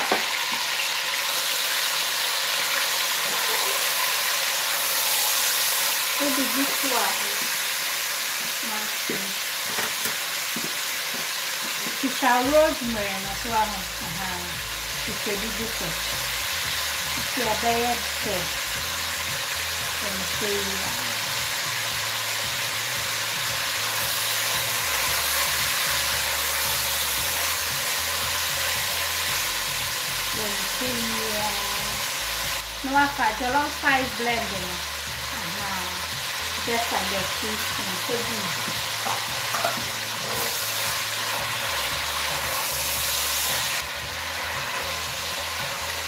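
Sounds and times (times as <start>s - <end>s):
meat and onions sizzling: 0.0s - 46.0s.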